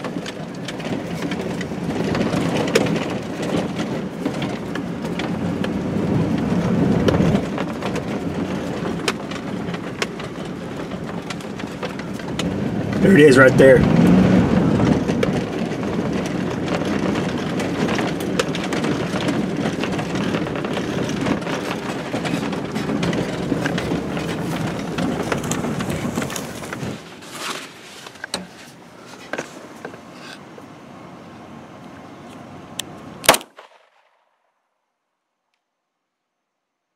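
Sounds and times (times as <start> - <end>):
rattles and knocks from cab: 0.0 - 13.0, 13.8 - 30.4
sharp clicks and knocks: 0.0 - 13.0, 14.8 - 28.5
truck engine and road noise: 0.0 - 34.2.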